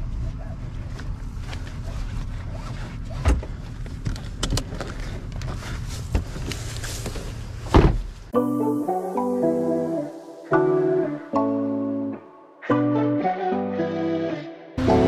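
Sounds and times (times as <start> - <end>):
guitar music: 8.4 - 15.0.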